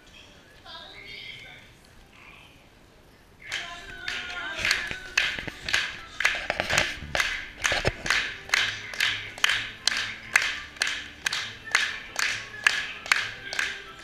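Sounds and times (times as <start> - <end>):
music: 3.4 - 14.0
crowd clapping in unison: 3.5 - 14.0.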